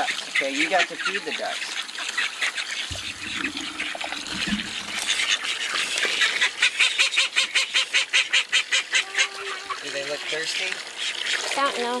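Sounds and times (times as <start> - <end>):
garden hose hissing: 2.9 - 6.4.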